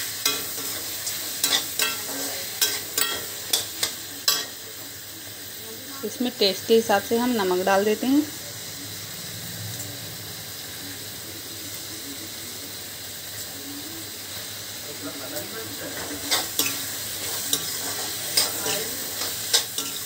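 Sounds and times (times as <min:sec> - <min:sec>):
metal spoon scraping a pan: 0:00.0 - 0:04.6, 0:15.8 - 0:20.0
vegetables sizzling in oil: 0:00.0 - 0:20.0.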